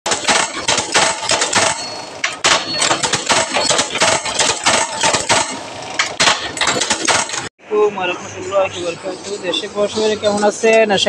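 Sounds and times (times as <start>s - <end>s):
machine metallic clattering: 0.1s - 7.5s.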